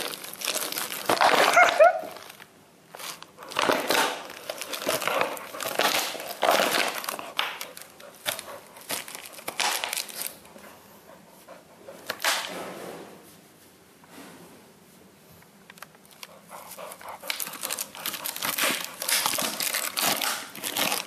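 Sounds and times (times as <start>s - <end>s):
plastic bottle crinkling: 0.0s - 10.5s, 15.8s - 21.0s.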